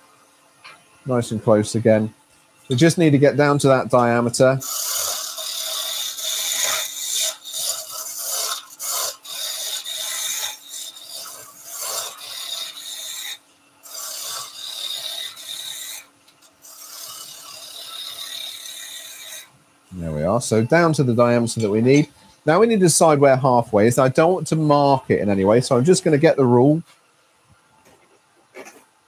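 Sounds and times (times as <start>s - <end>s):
chisel shaving wood on lathe: 4.1s - 19.5s.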